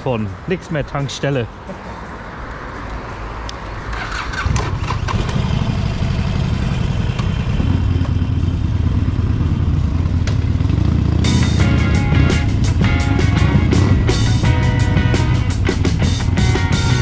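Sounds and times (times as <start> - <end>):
music: 0.0 - 5.0, 7.7 - 17.0
motorcycle engine deep rumble: 3.9 - 17.0.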